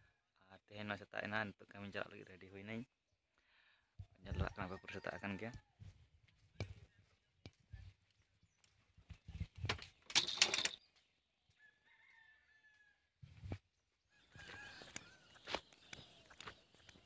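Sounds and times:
rooster crowing: 4.5 - 5.6, 11.6 - 13.2, 14.1 - 15.6
footsteps on ground: 13.3 - 17.0.

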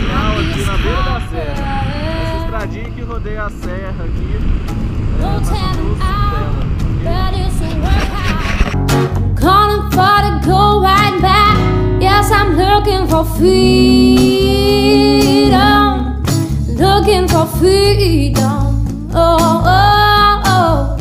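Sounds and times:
person singing over guitar: 0.0 - 2.9, 9.4 - 21.0.

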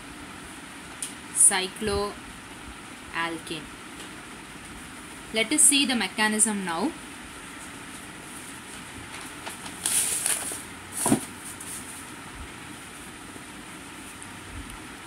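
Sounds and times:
steady background hiss: 0.0 - 15.0
scratchy handling rustle: 7.5 - 12.1.

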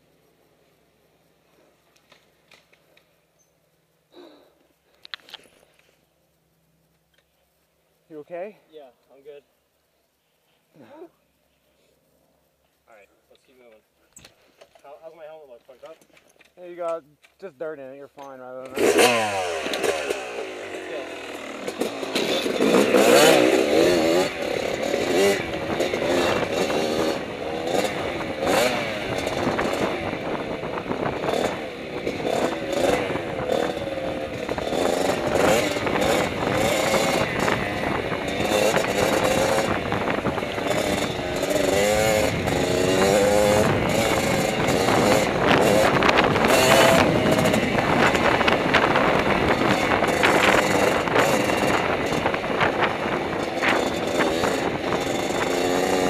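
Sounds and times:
dirt bike engine revving: 18.6 - 56.0.

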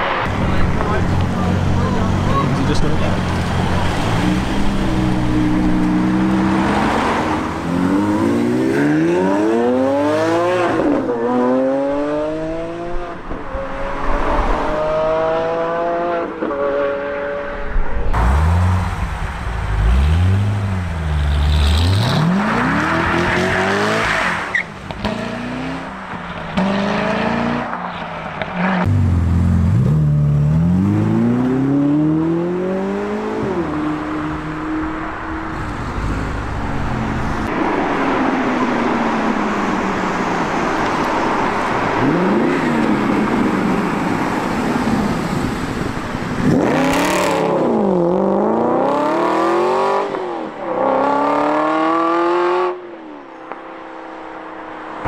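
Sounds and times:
sports car engines revving: 0.0 - 55.0.

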